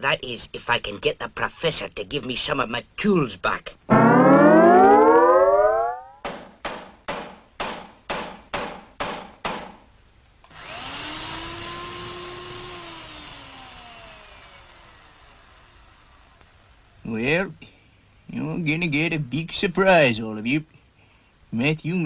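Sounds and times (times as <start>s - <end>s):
electronic pulses: 3.9s - 6.2s
whirring hum falling in pitch: 3.9s - 6.2s.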